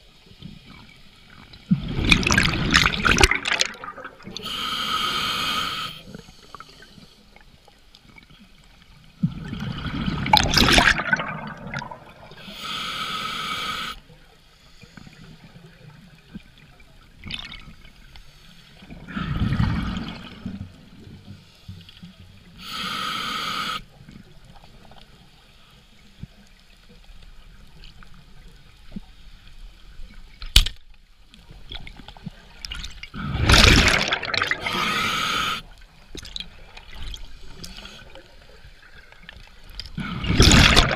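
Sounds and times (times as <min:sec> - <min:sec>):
exhaled bubbles: 0:01.7 - 0:04.5, 0:09.2 - 0:12.4, 0:32.7 - 0:35.6, 0:39.9 - 0:40.9
regulator inhalation hiss: 0:04.4 - 0:07.2, 0:12.3 - 0:15.2, 0:22.6 - 0:24.0, 0:34.6 - 0:35.7.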